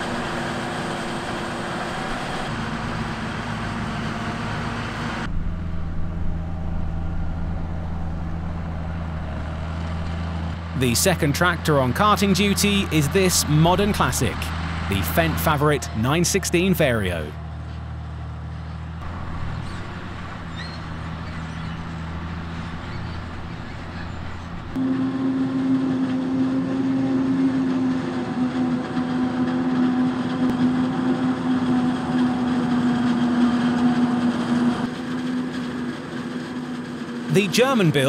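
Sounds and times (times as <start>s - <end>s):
strong steady hum: 0.0s - 17.8s
diesel engine drone: 0.0s - 38.0s.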